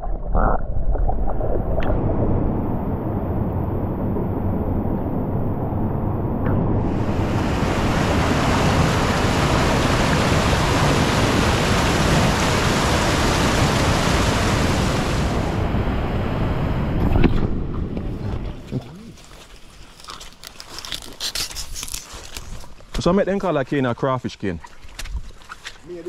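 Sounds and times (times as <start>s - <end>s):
river rapids rushing: 6.9s - 15.5s.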